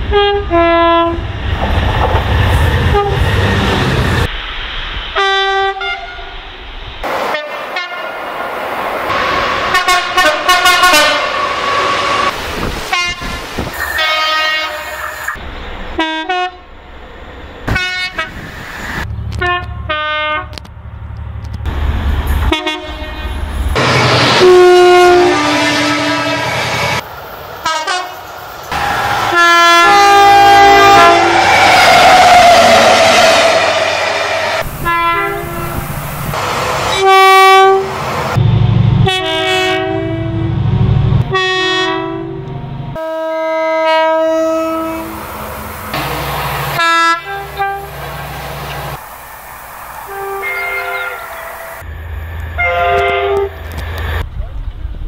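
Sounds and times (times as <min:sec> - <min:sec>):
locomotive air horn blasts: 0:00.0 - 0:01.2, 0:02.9 - 0:03.3, 0:05.2 - 0:06.3, 0:07.3 - 0:08.2, 0:09.1 - 0:13.4, 0:14.0 - 0:15.0, 0:16.0 - 0:16.6, 0:17.7 - 0:18.4, 0:19.4 - 0:20.6, 0:22.5 - 0:23.4, 0:24.0 - 0:26.6, 0:27.6 - 0:28.2, 0:28.8 - 0:33.8, 0:34.8 - 0:35.8, 0:36.9 - 0:40.6, 0:41.2 - 0:45.2, 0:46.7 - 0:48.1, 0:50.1 - 0:51.8, 0:52.6 - 0:53.8
locomotive engine rumble: 0:44.5 - 0:55.0.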